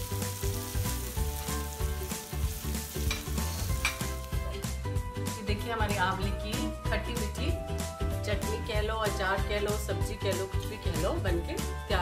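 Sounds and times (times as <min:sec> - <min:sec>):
food sizzling in oil: 0:00.0 - 0:05.0.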